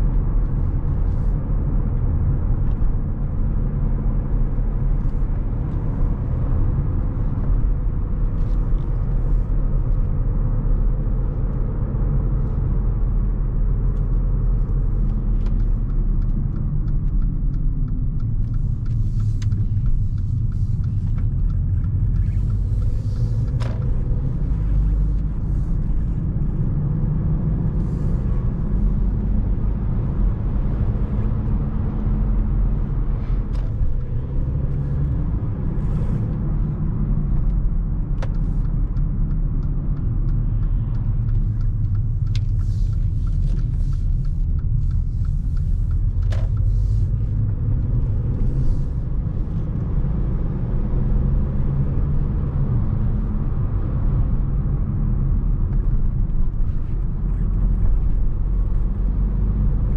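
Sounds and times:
car engine and road noise: 0:00.0 - 0:59.9
faint light ticks: 0:12.4 - 0:26.4, 0:32.8 - 0:49.9.

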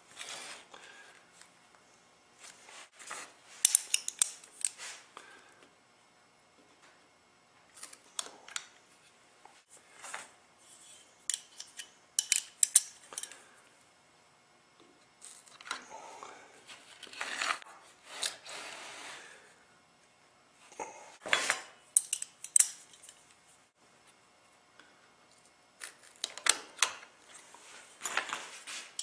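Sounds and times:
hand tools clicking and clinking: 0:03.6 - 0:04.8, 0:11.3 - 0:13.4, 0:21.9 - 0:23.2
tool scraping: 0:16.7 - 0:19.4.

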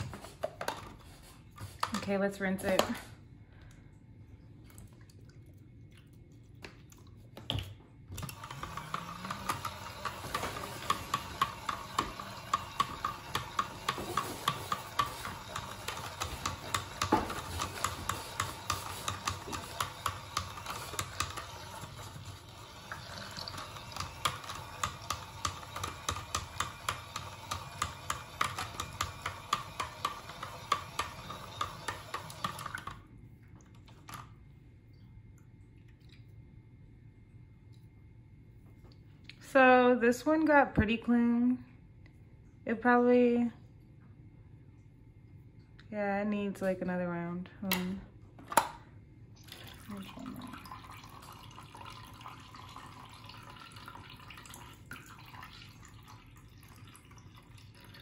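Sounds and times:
small washing machine motor spinning: 0:08.0 - 0:33.2, 0:49.4 - 0:58.0.

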